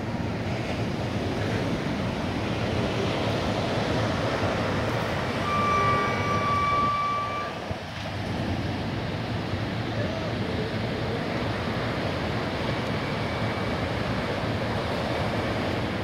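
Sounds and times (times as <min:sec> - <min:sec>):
sea surf breaking: 0:00.0 - 0:16.0
high steady tone: 0:05.4 - 0:07.8.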